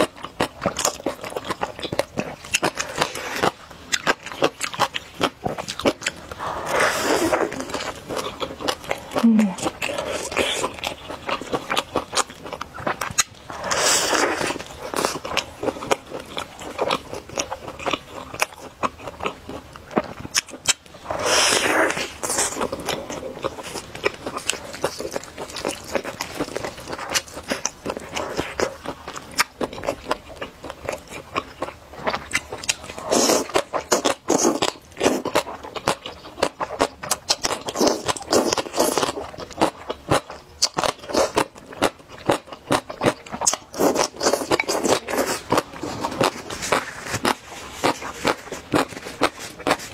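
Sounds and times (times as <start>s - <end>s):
wet chewing: 0.0s - 49.9s
slurping noodles: 6.2s - 8.3s, 13.5s - 16.0s, 21.0s - 28.8s.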